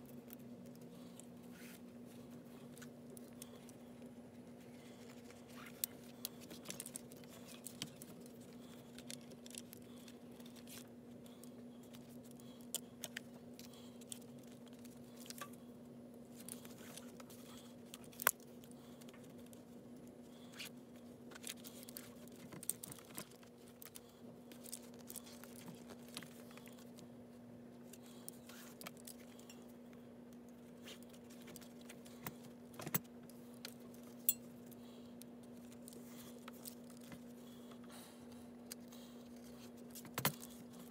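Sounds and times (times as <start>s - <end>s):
steady low hum: 0.0s - 40.9s
paracord handling clicks and rustles: 4.9s - 15.6s, 27.8s - 37.3s.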